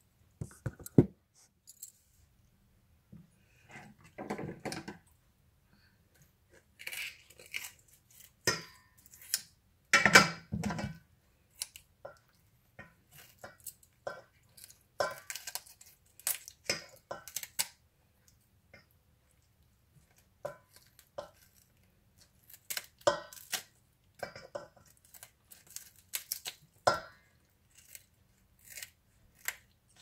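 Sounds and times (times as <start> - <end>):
scissors snipping raw chicken: 20.7 - 23.7.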